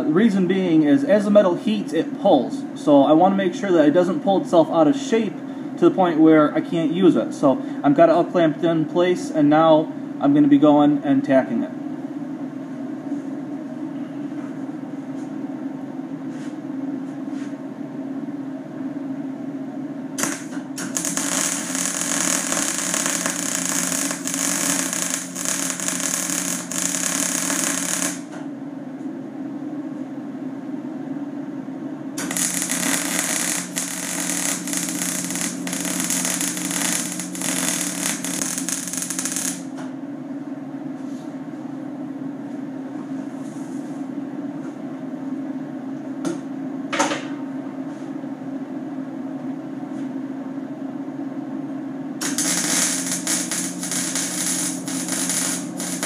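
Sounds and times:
arc welding crackle: 0:20.2 - 0:28.4, 0:32.2 - 0:39.8, 0:52.2 - 0:56.0
welder humming: 0:20.2 - 0:28.5, 0:32.2 - 0:39.9, 0:52.2 - 0:56.0.

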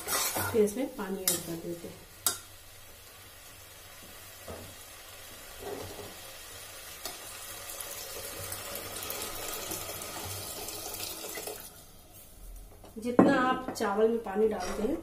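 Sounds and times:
food sizzling in oil: 0:00.0 - 0:12.0
water pouring: 0:07.5 - 0:11.7.

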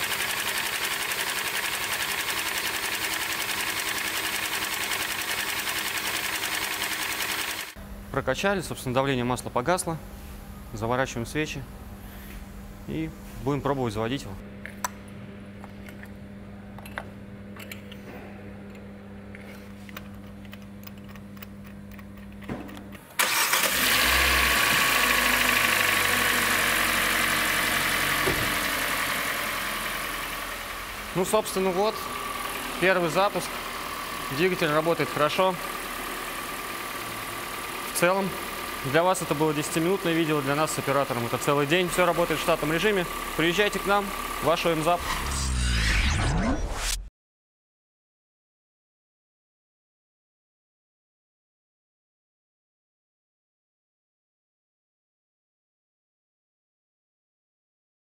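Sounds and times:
engine cranking on starter motor: 0:00.0 - 0:07.8, 0:23.0 - 0:30.6, 0:31.2 - 0:46.9.

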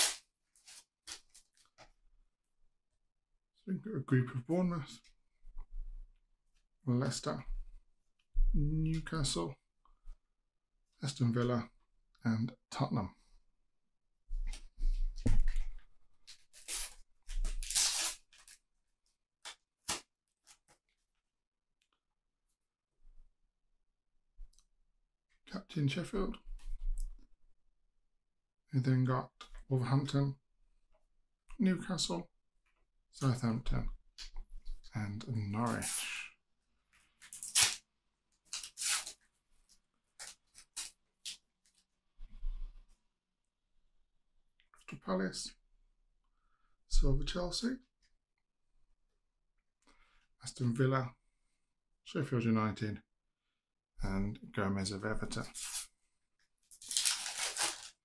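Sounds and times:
sticker packet tearing: 0:00.0 - 0:00.2, 0:37.3 - 0:37.8, 0:56.7 - 0:58.0.

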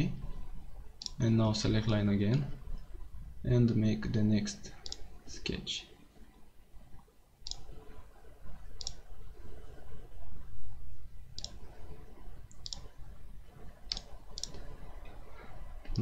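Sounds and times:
computer mouse button clicking: 0:13.9 - 0:14.6.

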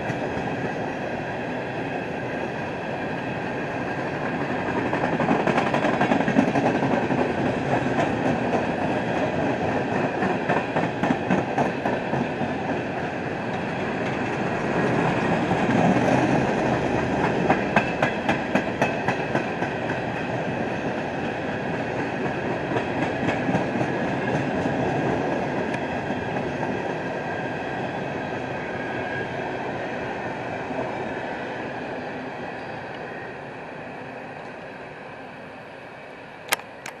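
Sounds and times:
freight train rumble: 0:00.0 - 0:37.0
train wheels clicking over rail joints: 0:04.0 - 0:26.8
sharp click: 0:36.5 - 0:37.0.

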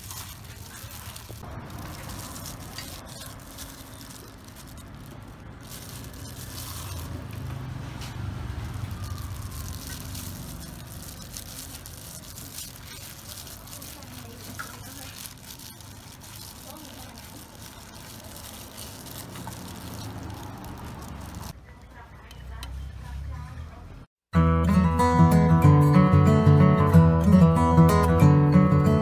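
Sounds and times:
wet squishing of stuffing: 0:00.0 - 0:21.6.

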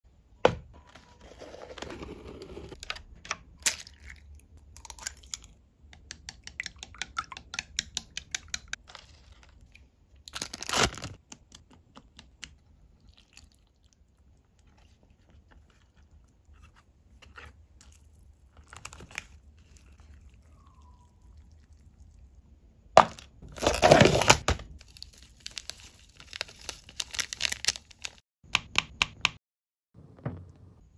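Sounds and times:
packaging crinkling and tearing: 0:10.3 - 0:11.2, 0:23.4 - 0:28.2.

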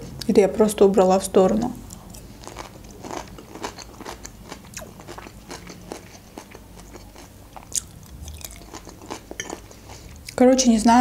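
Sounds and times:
chewing crisp cucumber: 0:01.9 - 0:10.4.

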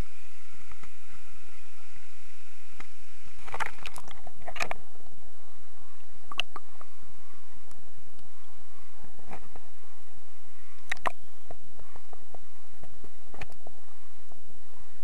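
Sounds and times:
faint underwater hiss: 0:00.0 - 0:15.0
underwater clicks and knocks: 0:03.4 - 0:04.8.

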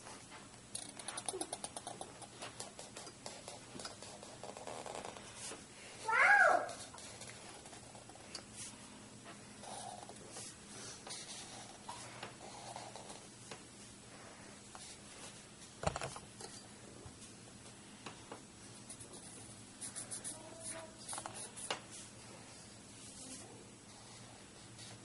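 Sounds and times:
marker strokes on paper: 0:00.8 - 0:08.8, 0:18.8 - 0:22.1.

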